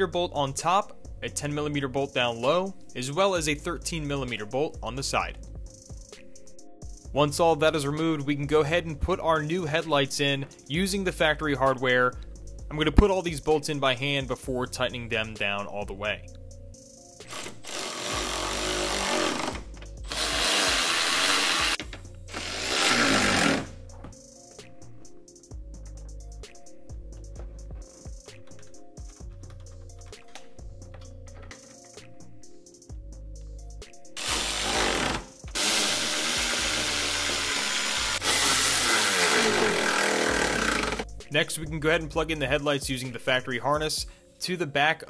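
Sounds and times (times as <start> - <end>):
cordless electric ratchet running: 17.3 - 23.7, 34.2 - 41.0.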